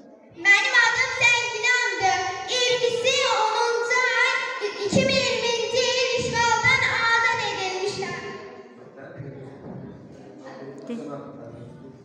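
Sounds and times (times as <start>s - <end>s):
girl singing into microphone: 0.4s - 8.3s.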